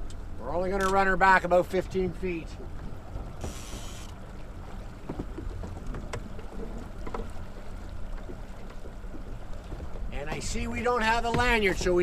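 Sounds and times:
outboard motor running: 2.0s - 12.0s.

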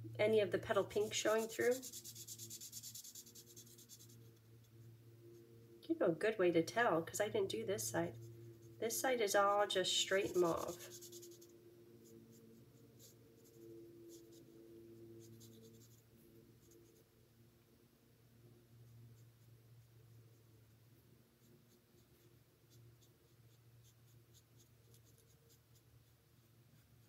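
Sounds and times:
low steady hum: 0.0s - 27.0s
marker scratching on cardstock: 0.8s - 4.2s, 10.1s - 11.5s, 15.2s - 16.0s, 22.0s - 27.0s.

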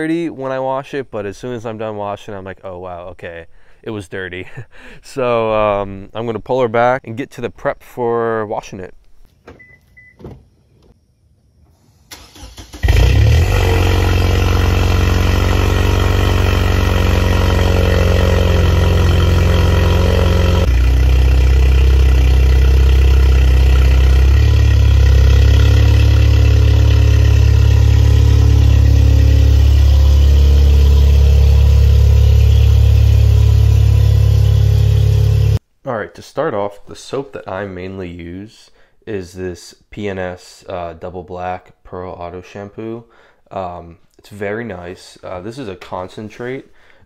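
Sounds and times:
car engine starting and idling: 12.1s - 35.6s.

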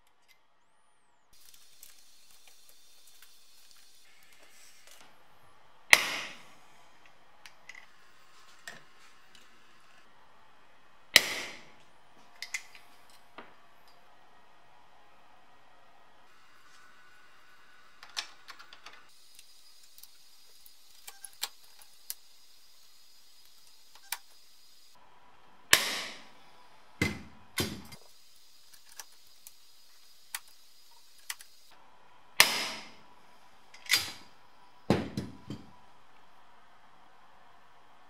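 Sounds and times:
rivet gun snapping: 5.9s - 6.4s.

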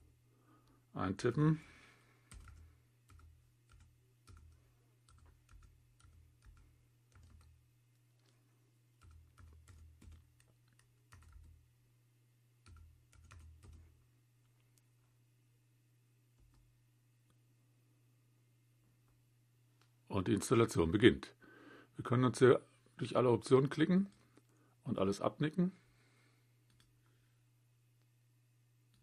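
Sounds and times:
low steady hum: 0.0s - 29.0s
keyboard typing: 2.3s - 8.4s, 9.0s - 11.6s, 12.6s - 14.0s.

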